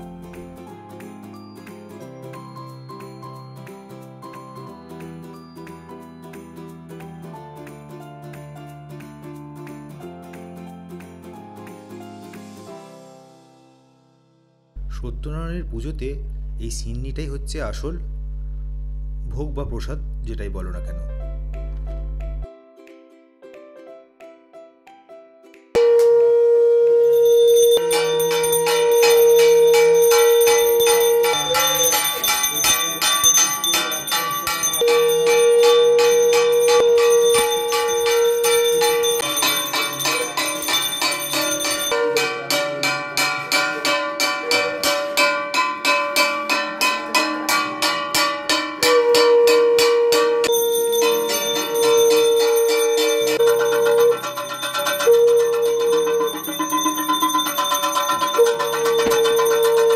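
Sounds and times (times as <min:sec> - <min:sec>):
conch shell long note: 0:25.8 - 0:32.0, 0:34.8 - 0:39.2, 0:48.8 - 0:56.3
brass hand bell ringing: 0:25.8 - 0:59.9
gong struck in steady beat: 0:25.8 - 0:59.9.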